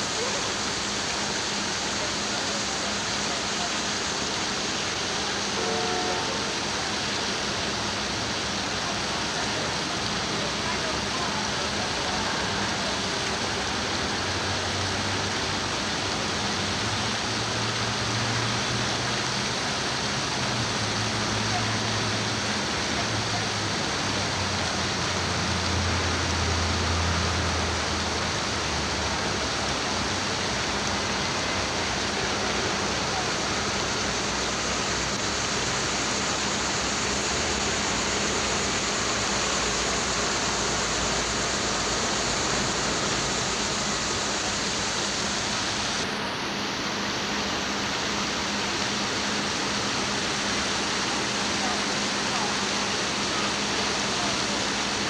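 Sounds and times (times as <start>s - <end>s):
fountain water splashing: 0.0s - 55.0s.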